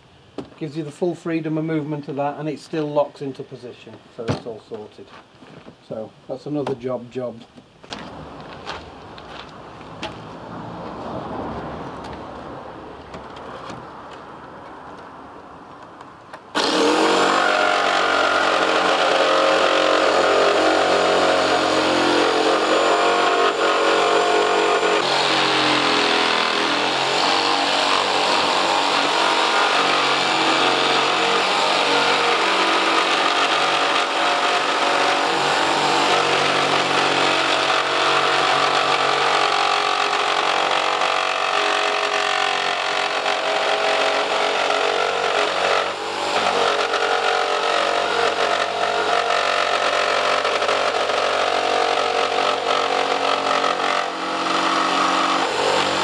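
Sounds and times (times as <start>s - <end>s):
electric jigsaw cutting board: 16.5s - 56.0s.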